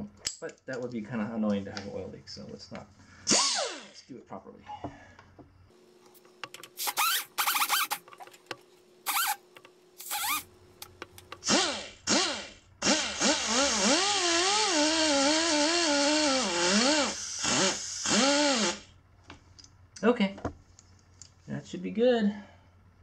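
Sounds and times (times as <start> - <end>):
die grinder whining: 11.4 - 18.9.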